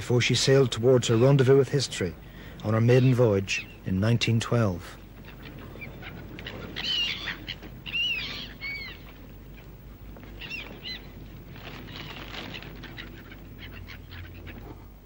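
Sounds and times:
faint steady hiss: 0.0 - 15.0
high-pitched bird calls: 5.2 - 14.8.

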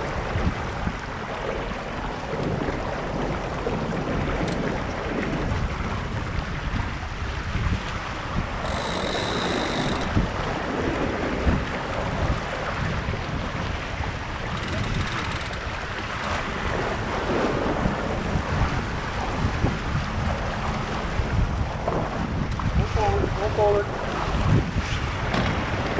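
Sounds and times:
water rushing along hull: 0.0 - 25.9
wind buffeting microphone: 0.0 - 25.9
high-pitched buzz: 8.6 - 10.1.

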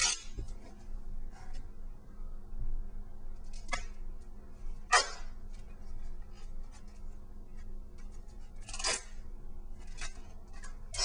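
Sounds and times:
tape crackling and rubbing on foam: 4.9 - 11.0.

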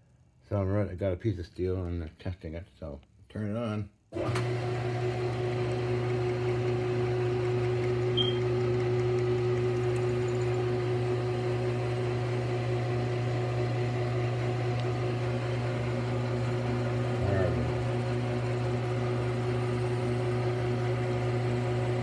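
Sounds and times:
metal lathe running: 4.4 - 12.4.

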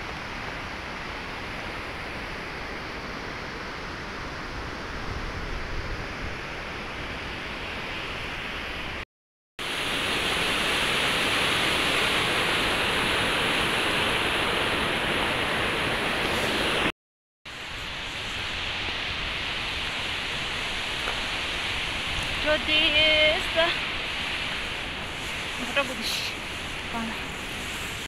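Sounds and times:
whitewater river rushing: 9.6 - 16.9, 17.7 - 28.0.

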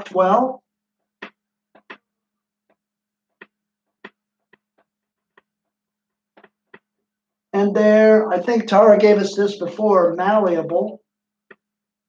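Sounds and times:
marker clicking on whiteboard: 1.0 - 2.1, 2.7 - 7.0.

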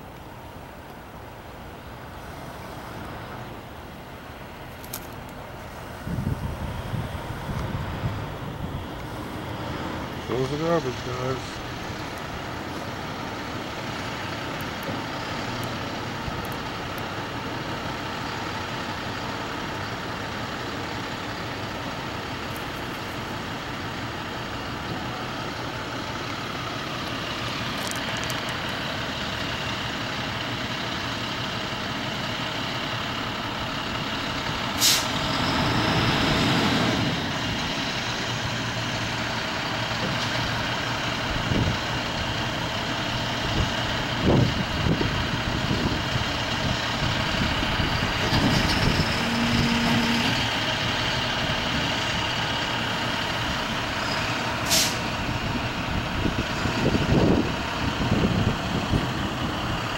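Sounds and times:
garbage truck engine running: 0.0 - 59.9
air brakes hissing: 34.7 - 35.3, 54.0 - 55.2.

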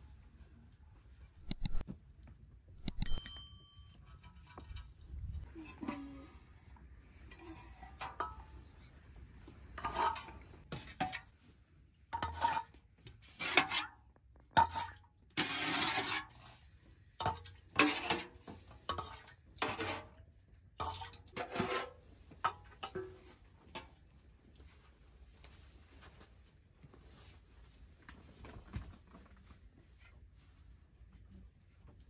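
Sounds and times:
lid and spoon clinking on metal: 1.4 - 1.8, 2.8 - 4.5.

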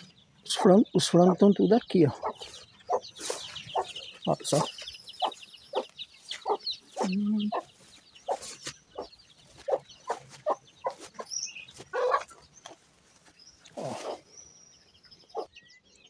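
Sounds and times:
high chirp: 0.0 - 12.7
chickens clucking: 0.0 - 14.3, 15.0 - 15.6.

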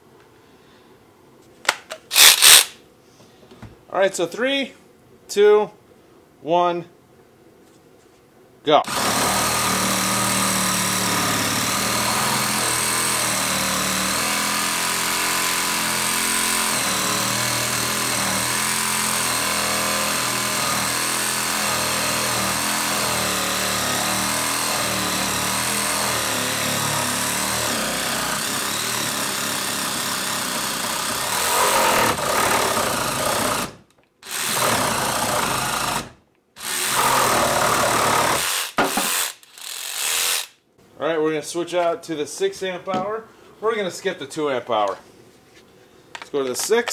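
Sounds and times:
reciprocating saw cutting wood: 2.1 - 2.8, 8.9 - 40.5.

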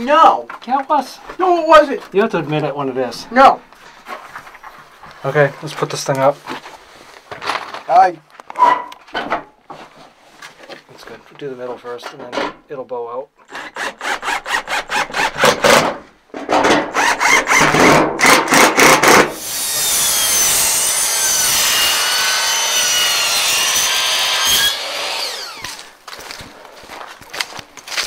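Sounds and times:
cordless drill driving screws: 13.5 - 15.6, 17.0 - 20.3, 21.6 - 25.9
miter saw cutting wood: 13.5 - 15.8, 16.9 - 26.0.

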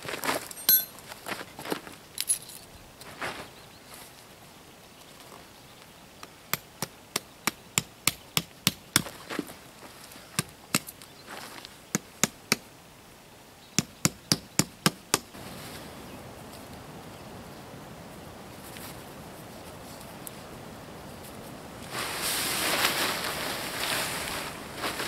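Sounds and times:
hammer striking tent stake: 13.8 - 15.3.

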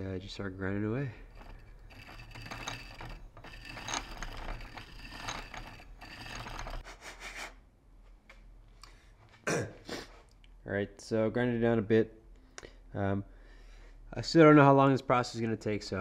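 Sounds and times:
piston ring filer grinding: 1.2 - 6.8.

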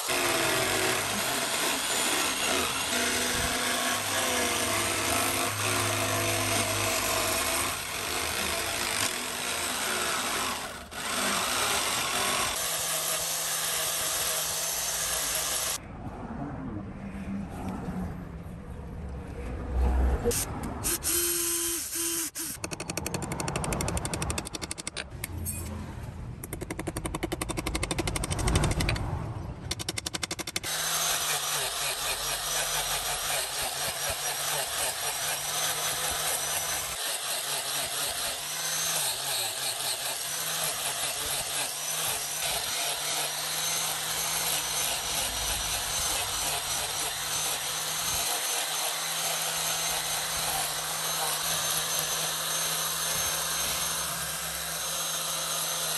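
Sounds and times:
angle grinder whining: 0.0 - 15.8, 30.7 - 55.9
drill boring through steel: 0.0 - 15.8, 20.3 - 22.6, 30.6 - 55.9.

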